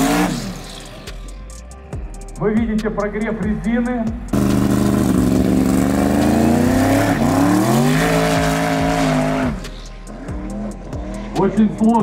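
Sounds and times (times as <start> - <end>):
race car engine at high revs: 0.0 - 0.9, 4.3 - 11.4.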